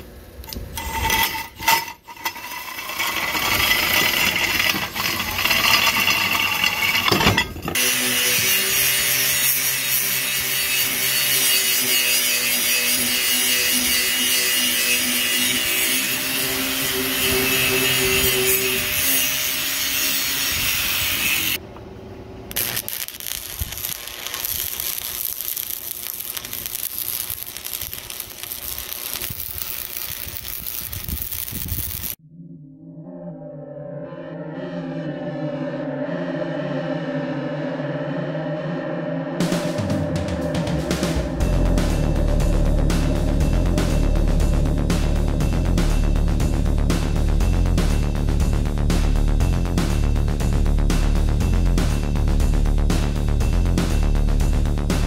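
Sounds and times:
angle grinder grinding steel: 0:00.5 - 0:21.6, 0:22.5 - 0:32.2
welding arc crackling: 0:00.5 - 0:21.6, 0:22.5 - 0:32.2.

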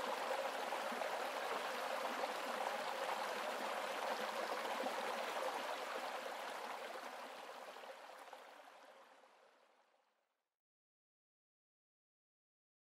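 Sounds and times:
rushing creek water: 0:00.0 - 0:09.4.

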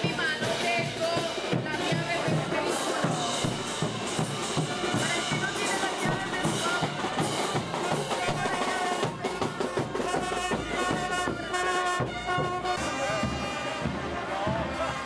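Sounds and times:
bass drums: 0:00.0 - 0:15.0
snare drums: 0:00.0 - 0:15.0
brass horns playing held notes: 0:06.3 - 0:15.0.

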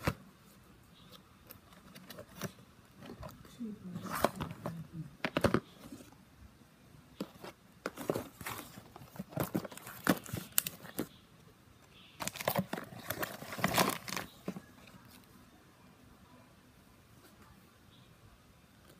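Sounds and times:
plastic bags crinkling: 0:12.2 - 0:14.6.

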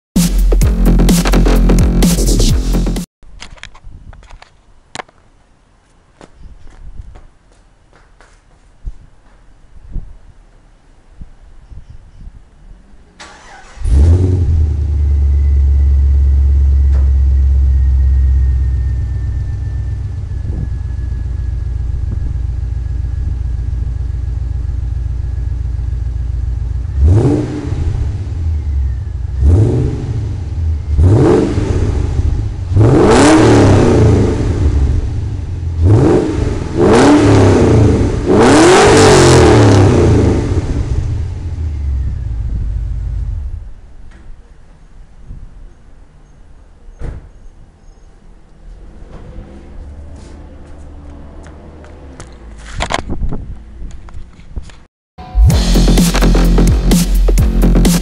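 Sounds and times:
car engine revving: 0:13.2 - 0:22.7, 0:26.5 - 0:43.6
car engine starting: 0:13.2 - 0:43.9, 0:48.6 - 0:53.9, 0:55.3 - 0:58.0
car engine idling: 0:14.5 - 0:31.0.

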